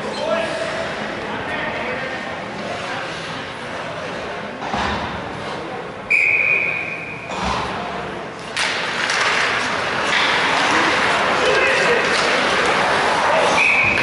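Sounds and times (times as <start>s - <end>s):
referee whistle blast: 6.1s - 7.2s, 13.6s - 14.0s
skates and sticks on ice: 8.4s - 14.0s.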